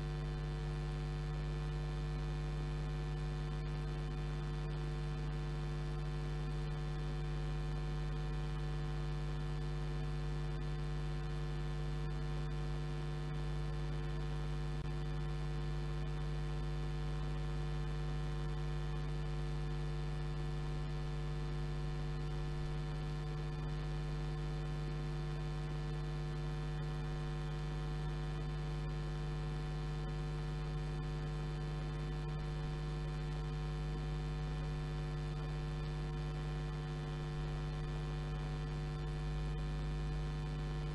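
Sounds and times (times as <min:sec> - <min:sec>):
electrical mains hum: 0:00.0 - 0:05.4.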